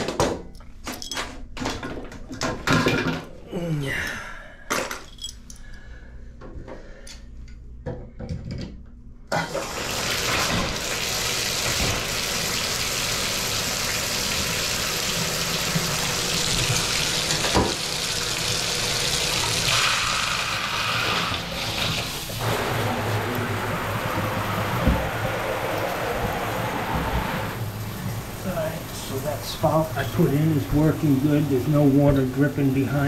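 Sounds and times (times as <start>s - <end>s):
water running from bathtub spout: 9.4s - 33.0s.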